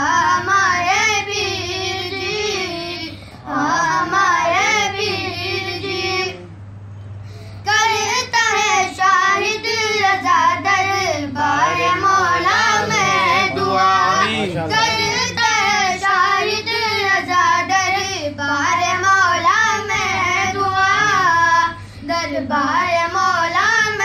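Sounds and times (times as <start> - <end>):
person singing devotional song: 11.2 - 17.7.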